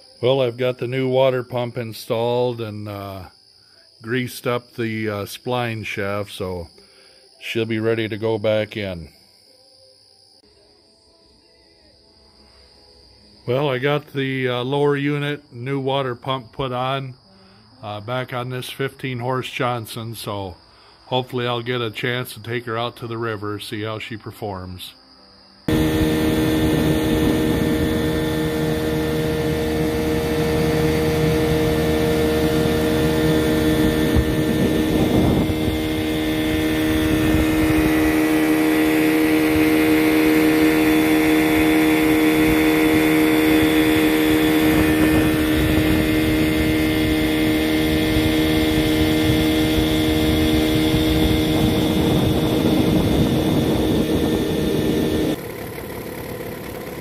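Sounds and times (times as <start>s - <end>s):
outboard motor running: 25.7s - 57.0s.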